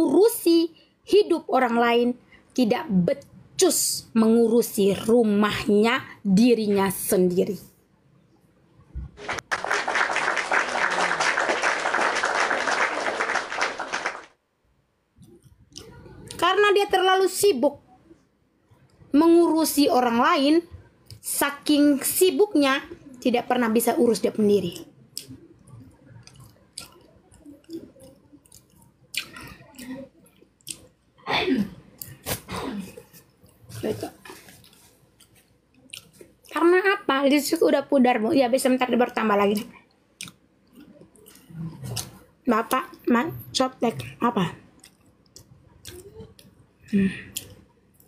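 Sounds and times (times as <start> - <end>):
crowd applauding: 9.2 - 14.4
woman's lip smacks and tongue clicks: 24.8 - 29.6, 30.2 - 30.9, 34.7 - 36.4, 39.6 - 42.2, 44.8 - 46.6, 47.3 - 48.0.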